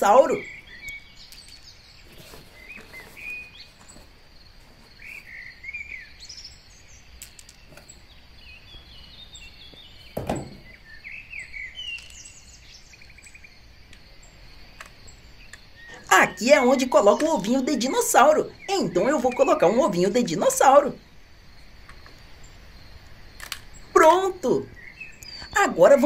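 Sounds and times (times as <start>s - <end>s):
birds chirping: 0.0s - 26.0s
thump: 10.2s - 10.7s.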